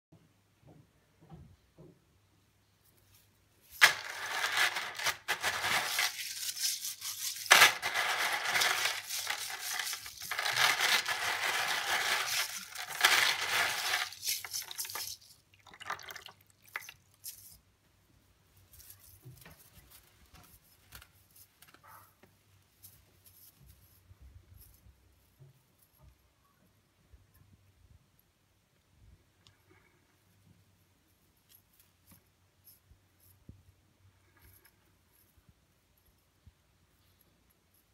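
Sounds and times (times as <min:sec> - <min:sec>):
cloth rustling: 0:03.0 - 0:15.3.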